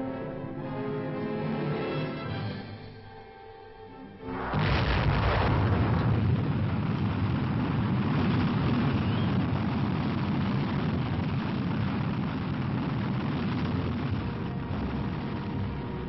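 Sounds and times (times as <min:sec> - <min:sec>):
rocket engine roaring: 0:04.3 - 0:16.0.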